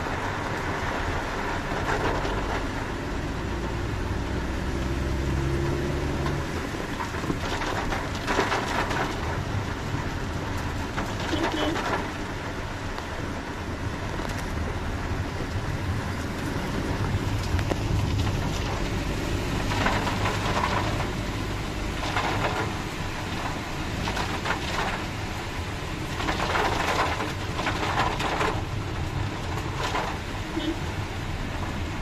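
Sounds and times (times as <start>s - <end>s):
engine and tyre hum: 0.0s - 32.0s
rain hissing on car roof: 0.0s - 32.0s.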